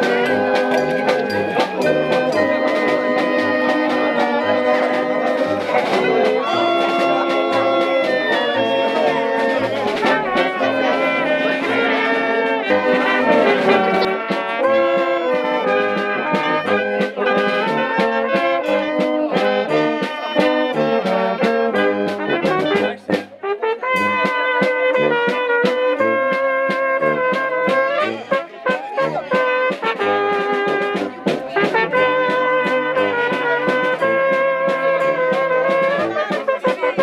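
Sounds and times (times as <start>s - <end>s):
brass band playing folk tune: 0.0s - 37.0s.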